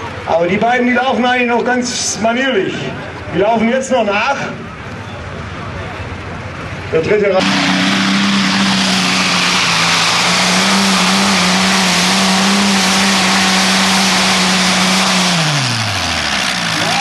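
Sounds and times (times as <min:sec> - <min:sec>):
tractor engine running hard: 0:04.8 - 0:17.0.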